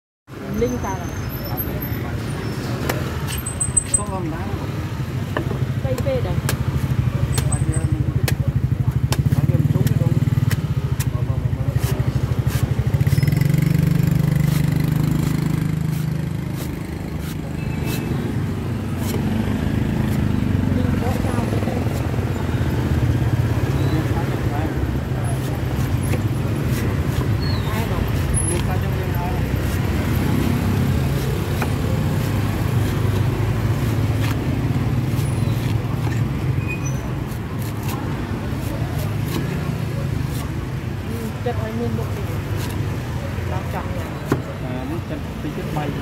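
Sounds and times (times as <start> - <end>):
low rumble of motor or traffic: 0.4 - 46.0
cleaver chopping coconut husk: 5.3 - 23.2, 25.0 - 36.5, 37.1 - 41.1, 42.4 - 44.6
cleaver clicking on coconut husk: 5.9 - 7.6, 8.2 - 13.2.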